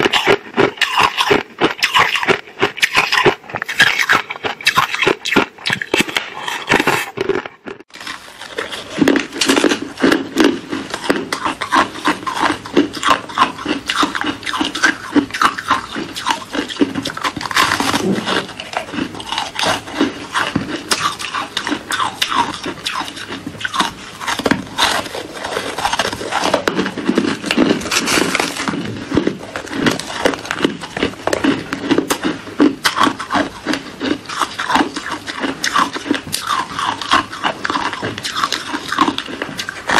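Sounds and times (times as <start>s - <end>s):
ice being chewed: 0.0s - 39.9s.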